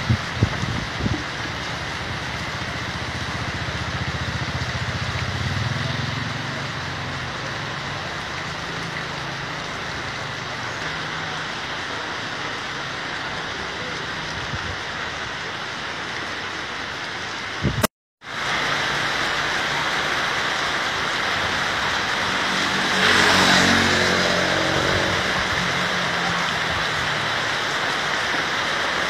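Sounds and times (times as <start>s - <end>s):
wind rumble on microphone: 0.0s - 2.8s, 14.4s - 14.9s, 17.5s - 17.9s
heavy rain hiss: 0.0s - 29.0s.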